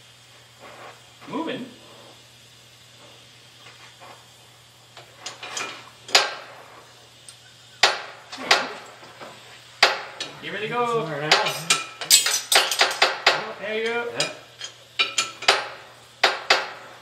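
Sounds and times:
metal-on-metal clanks: 11.3s - 16.8s.

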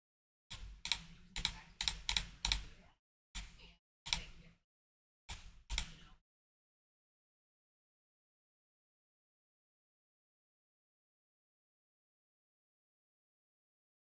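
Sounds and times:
computer keyboard typing: 0.5s - 2.7s, 5.3s - 6.1s.

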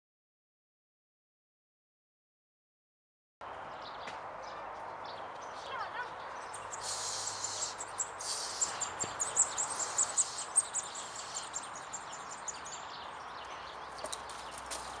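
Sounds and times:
small birds chirping: 3.4s - 15.0s
steady background hiss: 6.6s - 12.5s.

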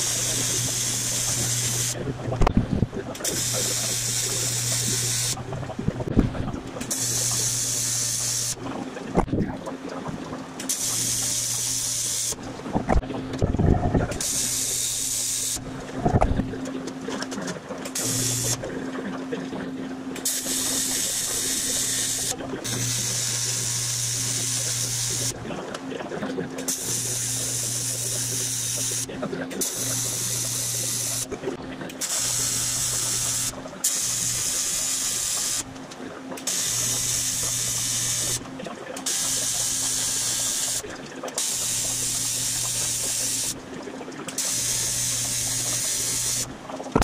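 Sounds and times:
welding arc buzzing: 0.0s - 2.0s, 3.1s - 5.4s, 6.8s - 8.6s, 10.6s - 12.4s, 14.1s - 15.6s, 17.8s - 18.6s, 20.2s - 25.4s, 26.7s - 31.4s, 32.0s - 35.7s, 36.4s - 38.4s, 39.0s - 43.6s, 44.3s - 47.0s.

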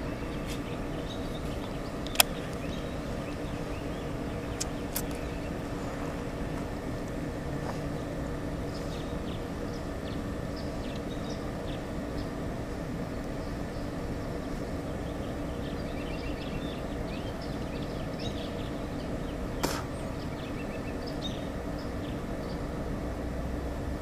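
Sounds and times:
birds chirping: 0.0s - 24.0s
factory machinery hum: 0.0s - 24.0s
sharp click: 2.0s - 2.7s, 4.6s - 5.2s.

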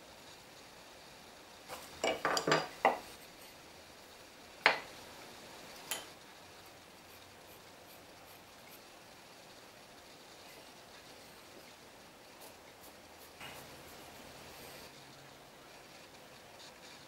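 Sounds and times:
tools knocking on wooden workbench: 2.0s - 3.0s, 4.6s - 4.9s.

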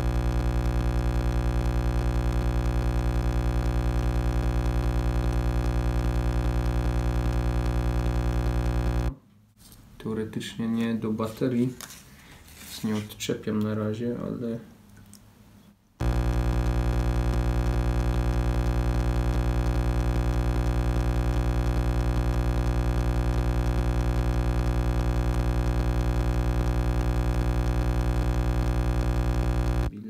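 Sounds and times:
pulsing electronic buzz: 0.0s - 9.1s, 16.0s - 29.9s.

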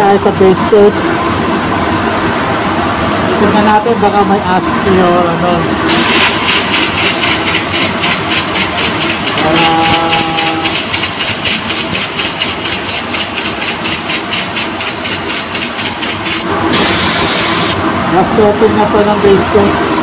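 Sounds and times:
spray gun hissing: 5.8s - 17.8s.

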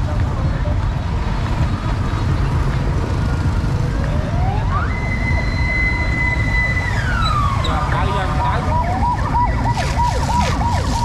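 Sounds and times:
low rumble of street traffic: 0.0s - 11.0s
siren wailing: 4.0s - 11.0s.

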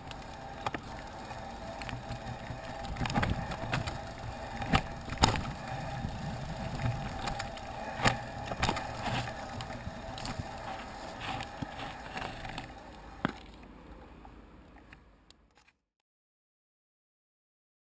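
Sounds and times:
mountain bike rattling on dirt trail: 0.0s - 13.6s.

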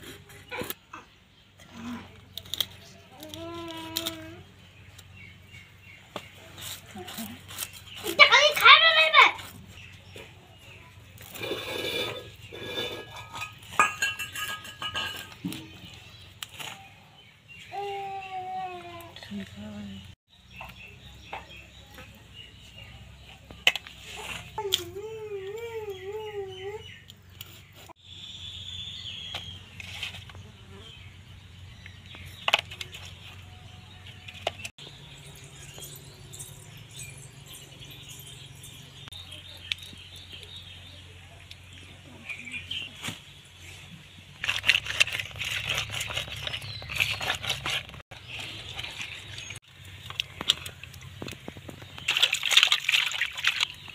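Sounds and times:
birds chirping: 0.0s - 53.9s
fish scraping against blade: 44.4s - 48.0s.

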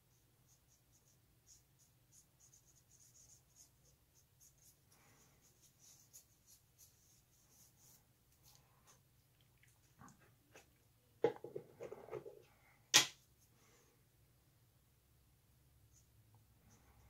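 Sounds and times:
paintbrush scratching on wood: 0.4s - 9.0s.

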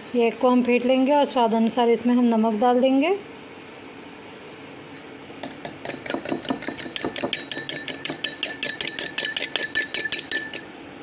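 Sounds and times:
fork clinking against glass bowl: 5.4s - 10.7s.

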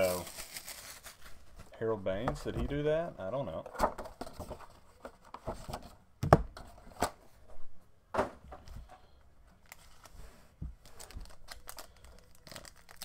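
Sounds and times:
cardboard and foam rustling: 9.6s - 13.0s.

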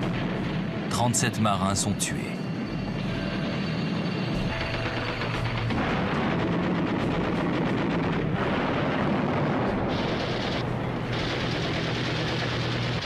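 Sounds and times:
anti-aircraft guns firing rapidly: 4.5s - 13.0s.

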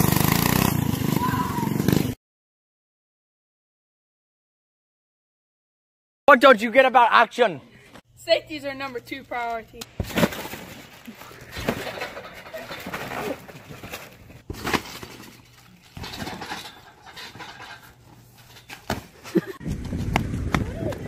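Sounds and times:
people landing on trampoline: 9.9s - 21.0s.

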